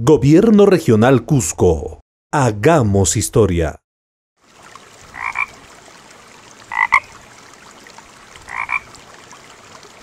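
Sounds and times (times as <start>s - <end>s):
frog croaking: 5.1s - 5.6s, 6.7s - 7.2s, 8.5s - 8.9s.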